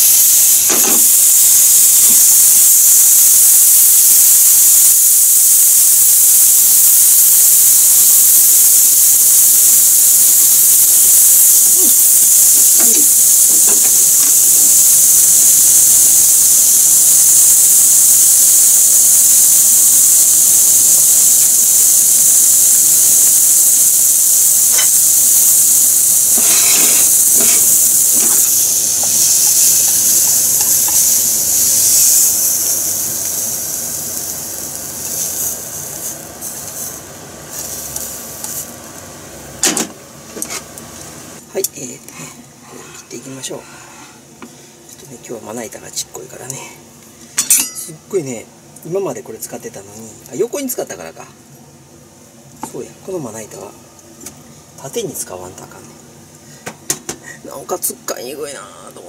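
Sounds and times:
vegetables sizzling in a frying pan: 0.0 - 42.0.

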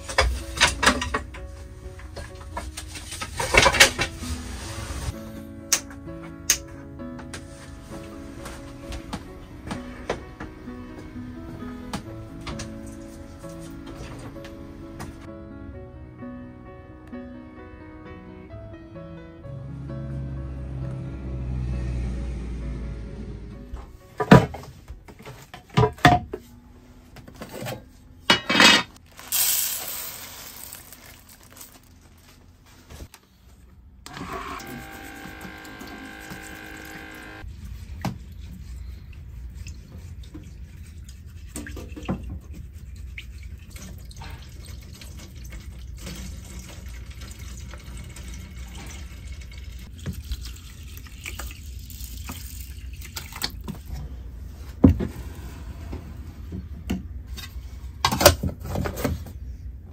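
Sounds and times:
water running and pouring: 29.1 - 31.7, 39.6 - 53.9
water poured from plastic bottle: 29.1 - 31.9, 43.6 - 53.7.

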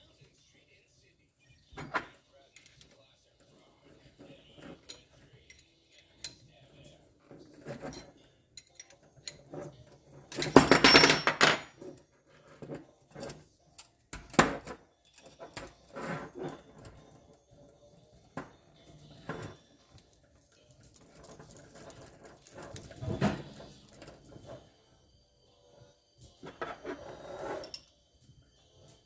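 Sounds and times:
metal tools clinking: 1.7 - 12.0, 18.8 - 24.6.

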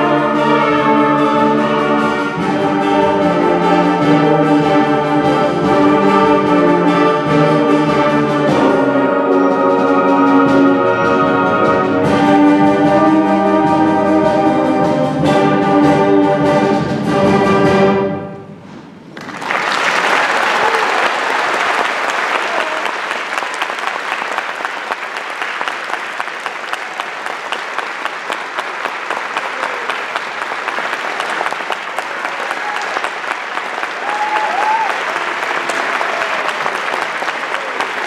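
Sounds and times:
concert band holding chords: 0.0 - 19.4
audience applause: 19.1 - 38.0.

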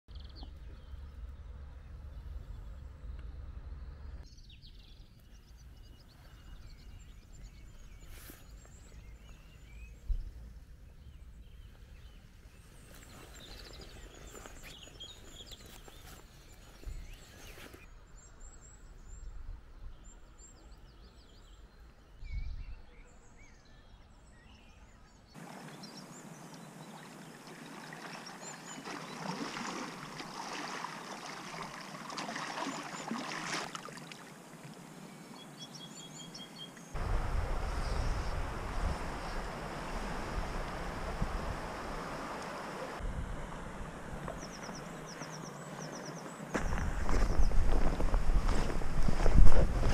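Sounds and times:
low rumble: 0.1 - 5.7
river water rushing: 25.4 - 34.8, 37.0 - 46.7
songbirds chirping and singing: 35.0 - 37.0.

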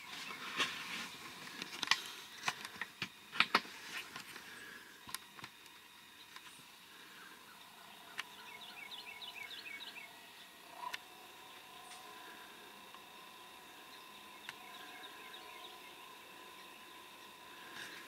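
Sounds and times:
small bird chirping: 7.4 - 12.2, 12.9 - 17.5.

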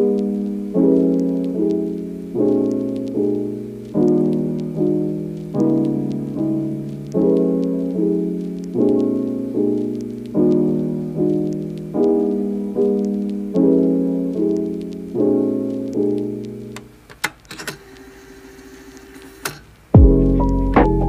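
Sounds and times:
soft piano chords: 0.0 - 16.8, 20.0 - 21.0
faint clicks: 8.4 - 12.2.

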